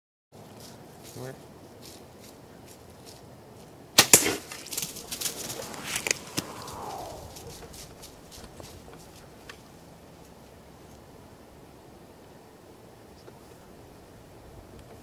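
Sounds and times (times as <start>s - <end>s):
deer running through dry leaves: 0.6s - 6.0s
bowstring and arrow cracks: 4.0s - 7.7s.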